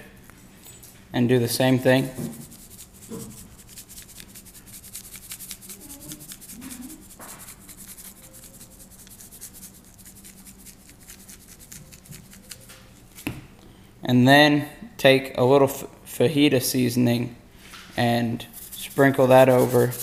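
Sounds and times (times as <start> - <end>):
seasoning shaker rattling: 2.0 - 13.2, 18.5 - 20.0.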